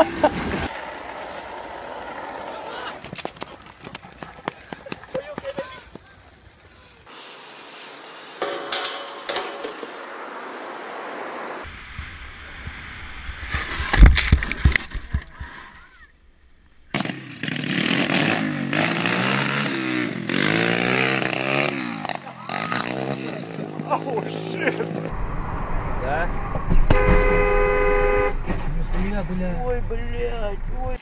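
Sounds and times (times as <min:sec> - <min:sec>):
crash in snow rushing rumble: 0:00.0 - 0:00.7
dirt bike engine revving: 0:16.9 - 0:29.1
loud thump: 0:25.1 - 0:29.2.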